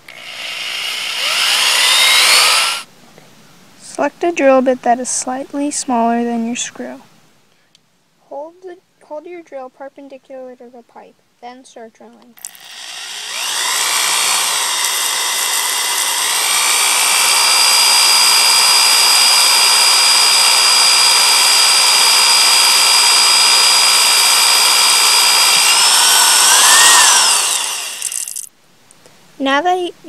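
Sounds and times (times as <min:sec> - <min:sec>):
electric drill boring through plastic: 0:00.0 - 0:02.9, 0:12.4 - 0:28.5.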